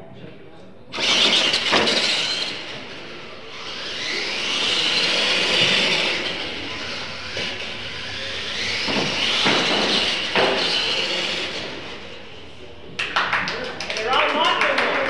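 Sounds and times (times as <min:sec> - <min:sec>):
electric motors whining: 0:00.9 - 0:13.0.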